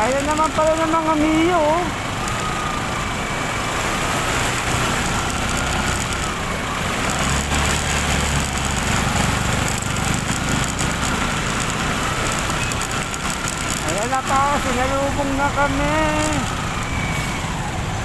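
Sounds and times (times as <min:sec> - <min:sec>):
motor scooter engine running: 0:00.0 - 0:17.0
rushing water: 0:00.0 - 0:18.0
water splashing spray: 0:03.2 - 0:17.5.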